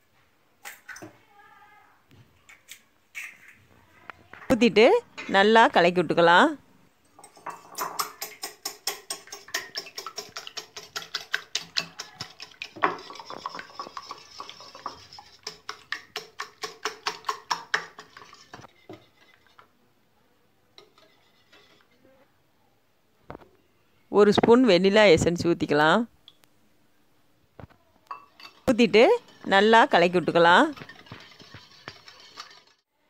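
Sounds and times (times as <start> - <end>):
whisk clinking against glass bowl: 7.2 - 19.4, 30.6 - 32.8.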